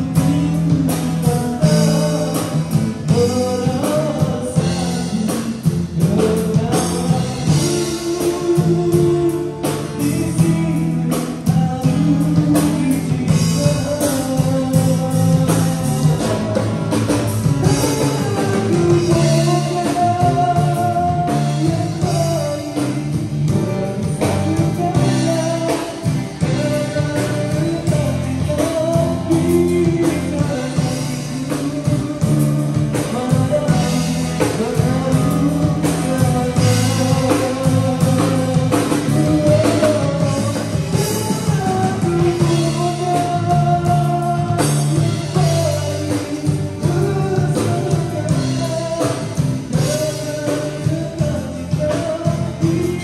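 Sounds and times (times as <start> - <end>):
drum kit: 0.0 - 53.0
guitar: 0.0 - 53.0
man singing into microphone: 0.0 - 53.0.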